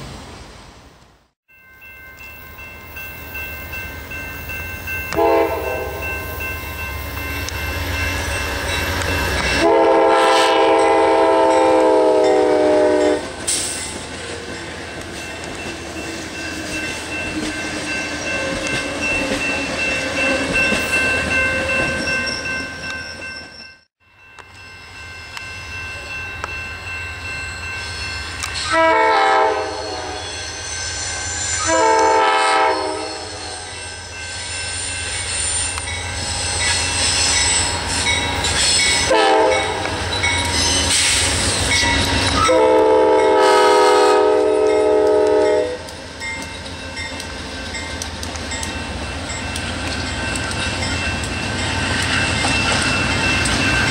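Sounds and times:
train cars rolling on rails: 2.2 - 53.9
train chime horn blasts: 3.3 - 13.4, 25.0 - 41.1, 41.8 - 45.9.

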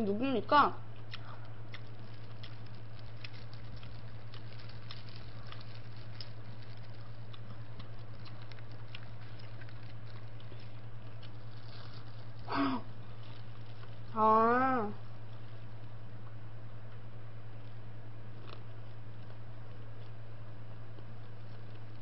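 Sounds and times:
low electrical hum: 0.0 - 22.0
crackles and rustles of gloves: 1.8 - 14.2.

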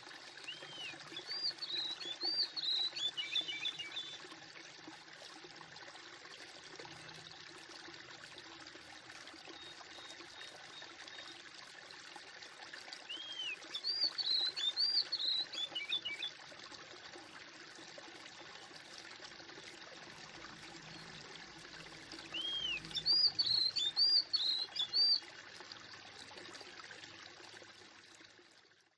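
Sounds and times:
trickling water: 0.0 - 28.9
small bird chirping: 22.3 - 25.2.

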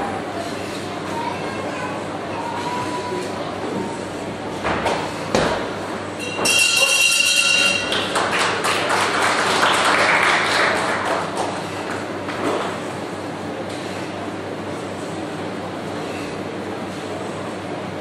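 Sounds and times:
boxing ring bell ringing: 6.2 - 8.0
crowd applauding: 7.6 - 12.1.

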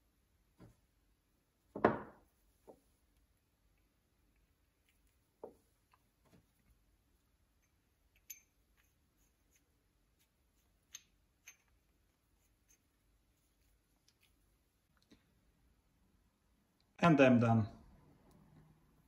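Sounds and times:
metal parts clicking and tapping: 7.6 - 9.6, 10.8 - 11.9.

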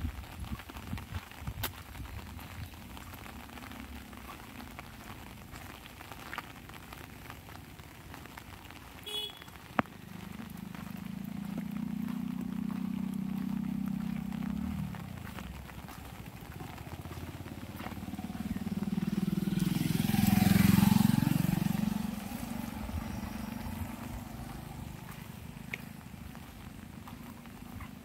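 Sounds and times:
rain pattering on umbrella: 0.0 - 28.0
vehicle engine approaching: 2.0 - 8.9, 9.6 - 28.0.

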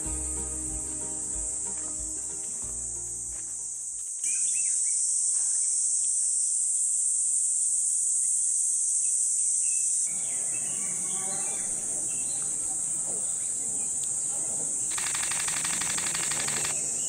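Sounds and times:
soft music with low notes: 0.0 - 4.0
high-pitched insect drone: 14.9 - 17.0.

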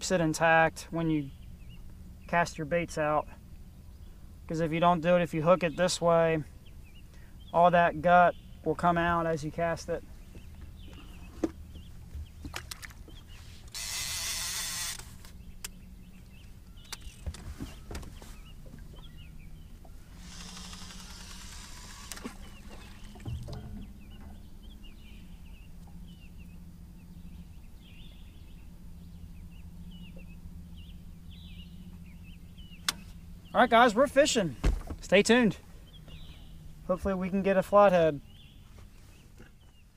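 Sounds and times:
steady low hum: 0.0 - 39.9
fishing line hissing off reel: 13.5 - 15.3, 20.1 - 23.0.

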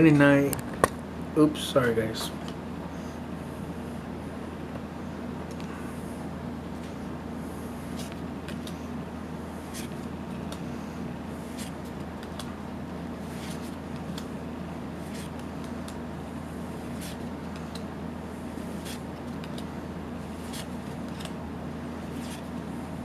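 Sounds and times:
steady low hum: 0.0 - 23.0
cards flipping and sliding: 7.8 - 8.9, 9.6 - 12.6, 13.2 - 22.7.

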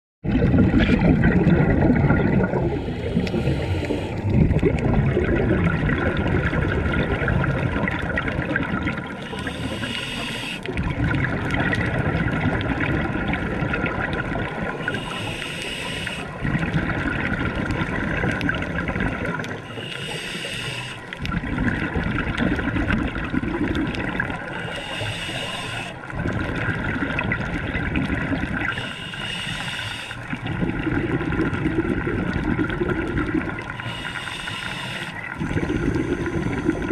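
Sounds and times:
exhaled air bubbling: 0.2 - 36.9
regulator hissing inhales: 2.8 - 4.3, 9.2 - 10.7, 14.9 - 16.4, 19.6 - 21.2, 24.5 - 26.0, 28.7 - 30.3, 33.8 - 36.9.

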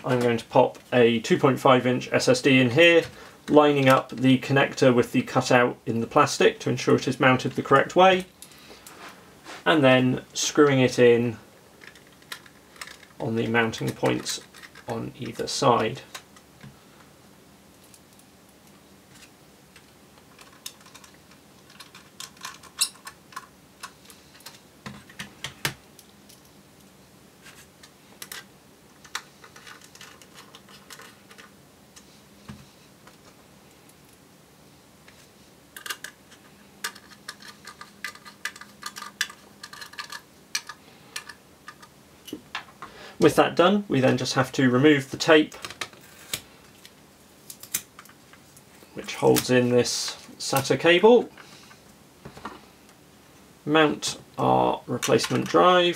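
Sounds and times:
small metal parts clicking: 20.3 - 24.6, 28.2 - 31.5, 35.8 - 41.9.

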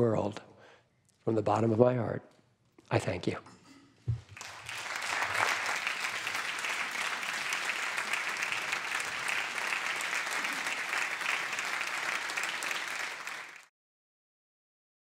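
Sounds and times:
crowd applauding: 4.3 - 13.7.

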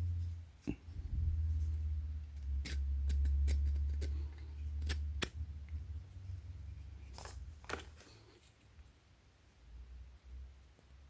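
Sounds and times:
low handling rumble: 0.9 - 3.4.

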